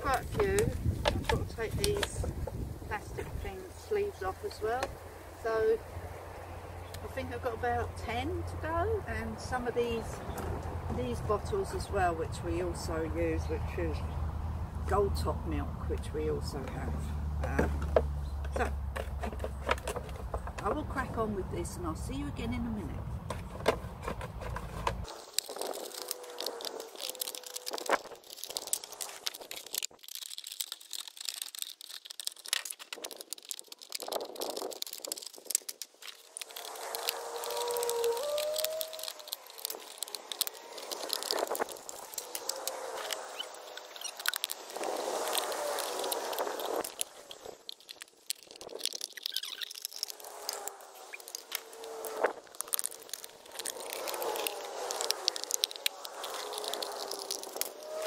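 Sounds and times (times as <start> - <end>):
plastic bottles crinkling: 0.0 - 4.8, 23.6 - 58.0.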